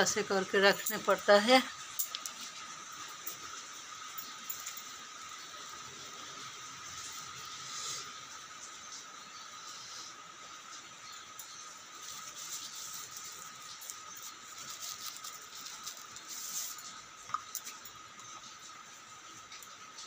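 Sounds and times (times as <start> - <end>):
plastic bag crinkling: 11.9 - 17.0.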